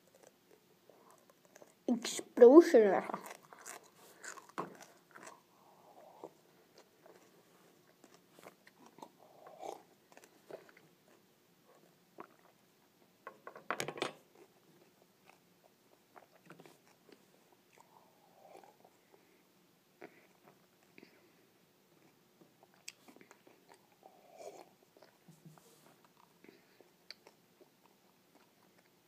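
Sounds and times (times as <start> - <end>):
chewing and swallowing: 3.1 - 11.2.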